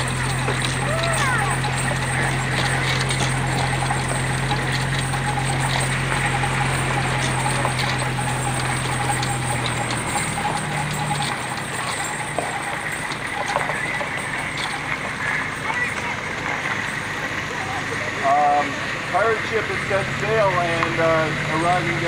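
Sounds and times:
clatter and knocking of structure: 0.0 - 17.4
tow vehicle engine drone: 0.0 - 22.0.

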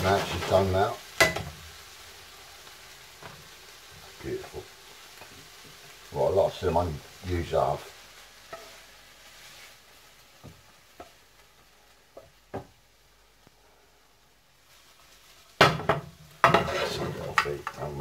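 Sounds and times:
faint sizzle: 0.0 - 18.0
pan clattering and scraping: 15.8 - 17.7.

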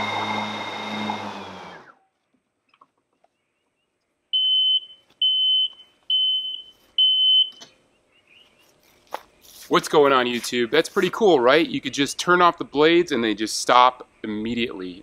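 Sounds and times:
mower blade motors whirring: 0.0 - 2.0.

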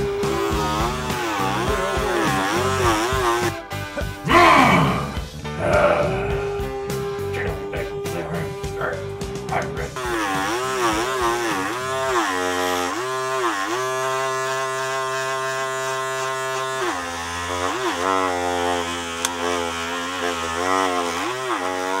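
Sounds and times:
reedy lead melody bending: 0.0 - 18.6
low steady drone: 3.9 - 17.8.

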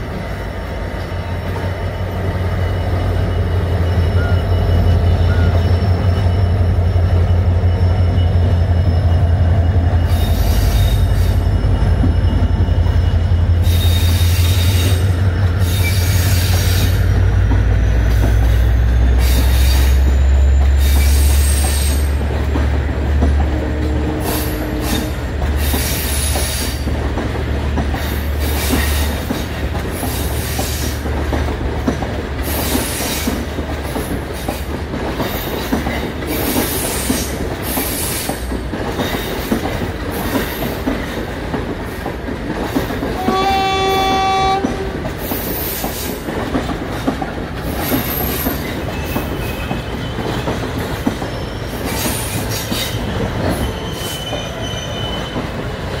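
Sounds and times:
train coaches rumbling past: 0.0 - 56.0
high wheel squeal: 1.2 - 22.3, 47.7 - 56.0
train horn: 23.4 - 26.0, 43.1 - 45.2.

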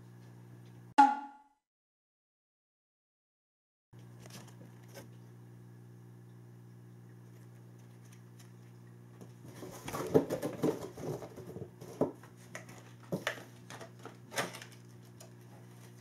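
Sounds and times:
faint steady hum: 4.0 - 16.0.

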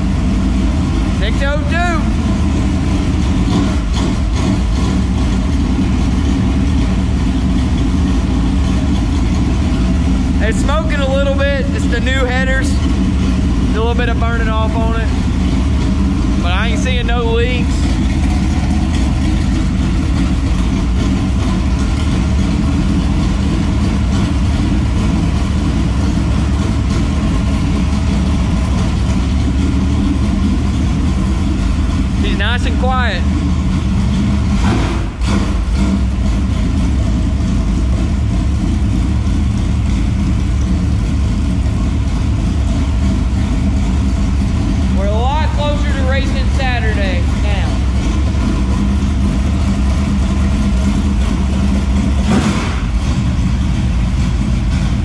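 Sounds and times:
race car engine idling: 0.0 - 55.0.

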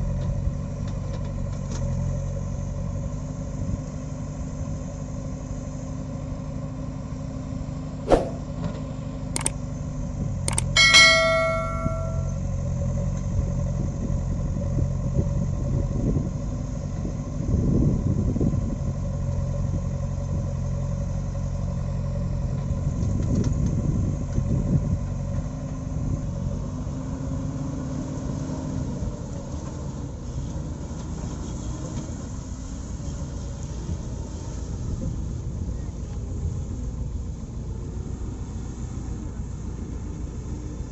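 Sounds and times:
bell-like ding: 10.5 - 12.4.

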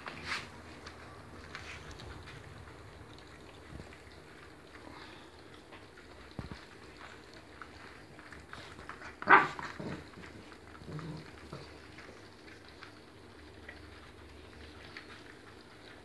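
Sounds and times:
puppies chewing and lapping: 0.0 - 16.0
dog barking: 9.2 - 10.0.

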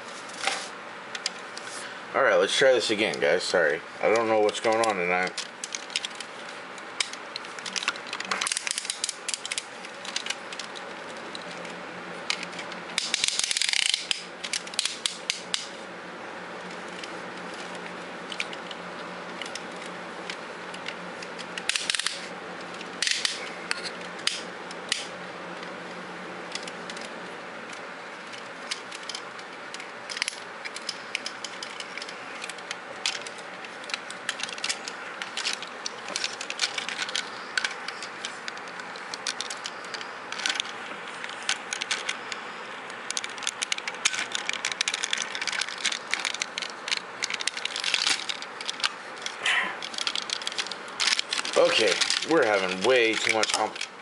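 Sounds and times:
steady low hum: 0.0 - 54.0
plastic toy clicking and rubbing: 4.1 - 15.8, 16.7 - 25.7, 26.5 - 53.9.

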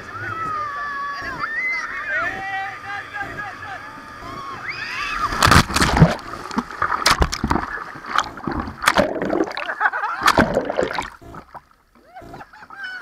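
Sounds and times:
heavy splash into water: 5.3 - 11.2
underwater churning and gurgling: 5.3 - 12.5.

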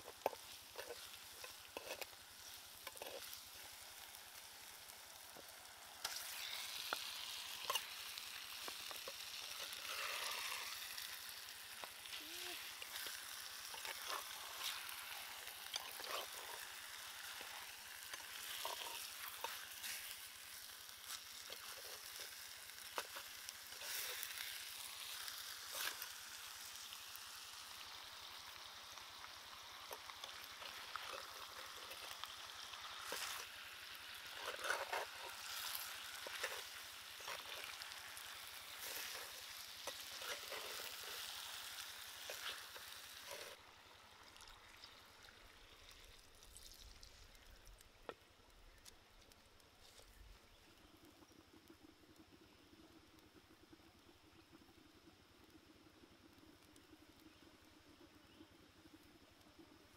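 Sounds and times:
utensil scraping pot: 0.0 - 4.2, 6.0 - 26.2, 29.9 - 43.6
fish sizzling in hot oil: 0.0 - 59.9.

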